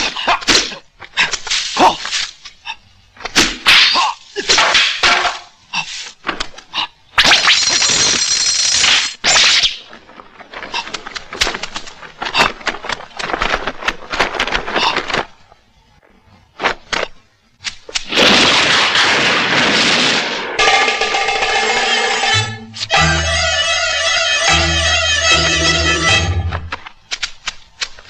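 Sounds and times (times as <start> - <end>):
music with sustained melody: 20.6 - 26.7.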